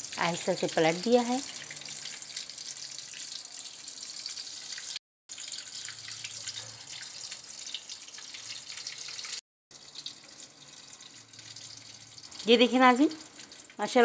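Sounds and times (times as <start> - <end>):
food sizzling in hot oil: 0.0 - 14.0.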